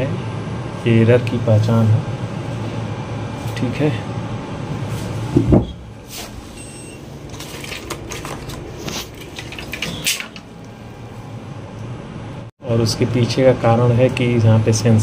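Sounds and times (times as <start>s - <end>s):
circuit boards and wires rattling: 7.2s - 10.6s.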